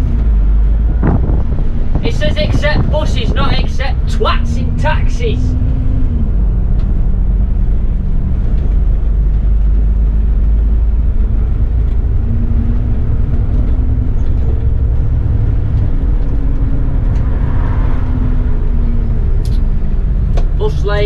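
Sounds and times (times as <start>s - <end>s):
bus engine rumbling: 0.0s - 21.0s.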